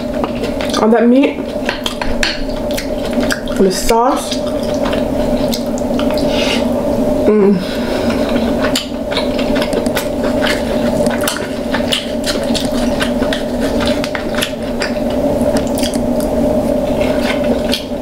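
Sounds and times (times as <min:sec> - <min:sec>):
wet chewing and squishing: 0:00.0 - 0:06.7, 0:07.9 - 0:18.0
steady hum: 0:00.0 - 0:18.0.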